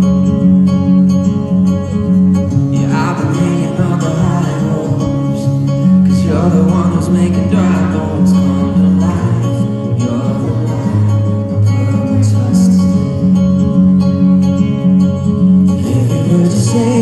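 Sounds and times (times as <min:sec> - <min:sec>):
live rock band: 0:00.0 - 0:17.0
man singing through pa: 0:02.7 - 0:13.4, 0:15.8 - 0:17.0.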